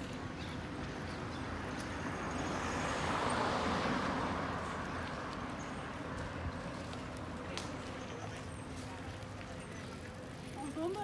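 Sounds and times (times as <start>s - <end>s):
vehicle passing by: 1.6s - 8.0s.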